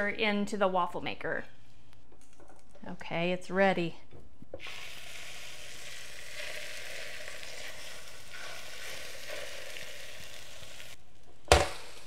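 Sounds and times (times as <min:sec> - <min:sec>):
batter sizzling in waffle maker: 0:04.6 - 0:11.0.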